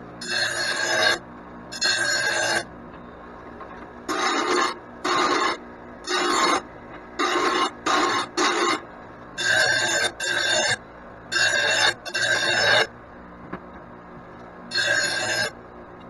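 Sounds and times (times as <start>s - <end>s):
grinder wheel sharpening steel: 4.1s - 6.6s, 14.7s - 15.5s.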